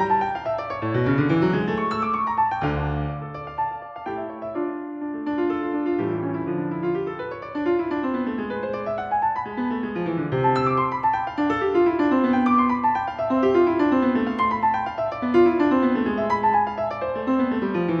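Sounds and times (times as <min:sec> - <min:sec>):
piano music: 0:00.0 - 0:18.0.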